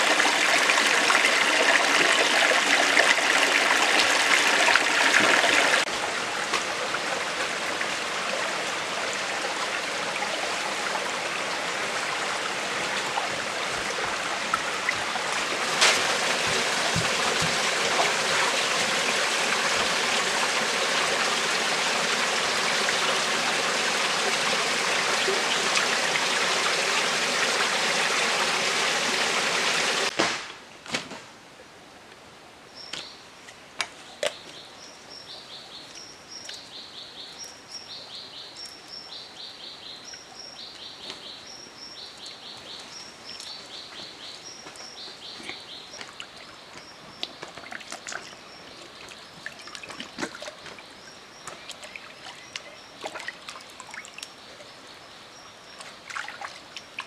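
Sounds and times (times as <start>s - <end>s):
rushing rocky stream: 0.0s - 30.2s.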